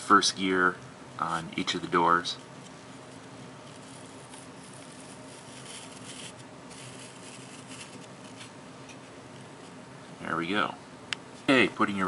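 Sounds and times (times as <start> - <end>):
room hiss: 0.0 - 12.0
hands rubbing plastic case: 2.6 - 9.1.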